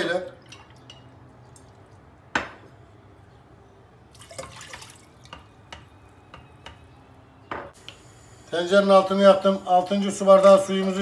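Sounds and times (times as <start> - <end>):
water dripping: 0.3 - 2.2, 4.1 - 5.8
water splashing into metal pot: 4.1 - 5.4.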